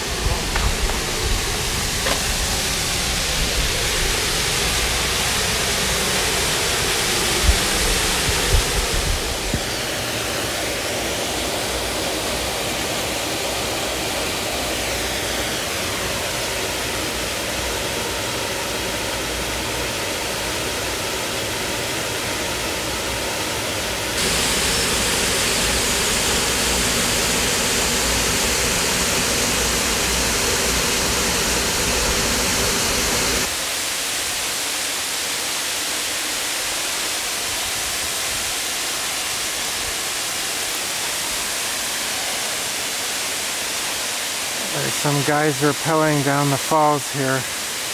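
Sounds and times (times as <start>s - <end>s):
waterfall pouring into a pool: 0.0s - 22.7s, 24.2s - 47.9s.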